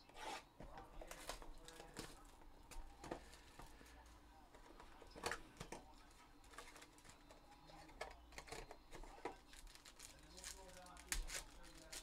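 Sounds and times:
cardboard and packaging rustles: 4.6s - 12.0s.

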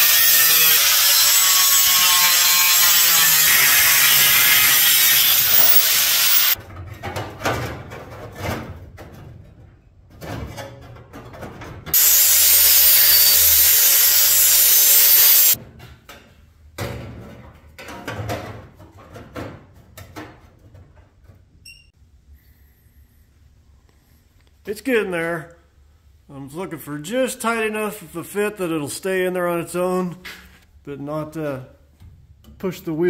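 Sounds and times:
angle grinder cutting metal: 0.0s - 6.6s, 12.0s - 15.6s.

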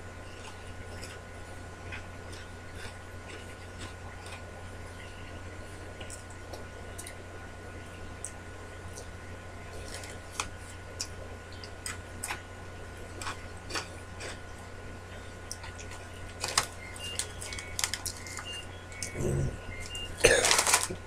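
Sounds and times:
low electrical hum: 0.0s - 21.0s
snack being eaten: 1.9s - 4.5s, 13.2s - 14.4s, 15.5s - 21.0s
snack bag crinkling: 9.8s - 10.5s, 15.5s - 21.0s.

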